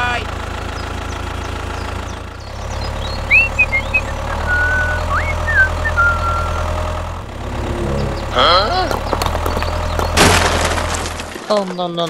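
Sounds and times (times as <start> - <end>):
tractor engine drone: 0.0 - 11.5
high whistled chirps: 2.8 - 6.8.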